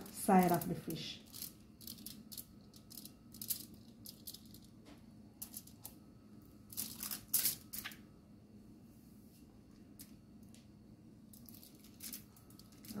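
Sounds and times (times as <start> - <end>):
aluminium foil crinkling: 0.0 - 4.7, 6.7 - 8.0, 11.4 - 13.0.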